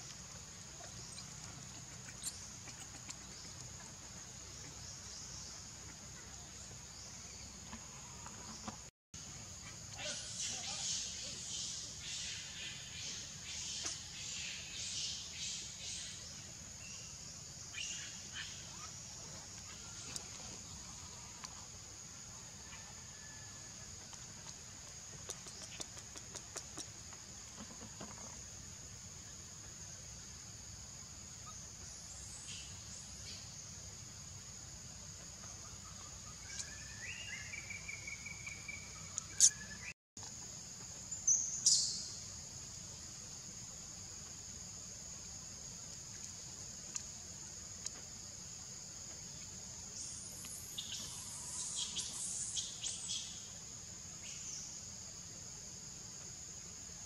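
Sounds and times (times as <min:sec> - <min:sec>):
short bird chirps: 0:36.5 - 0:39.9.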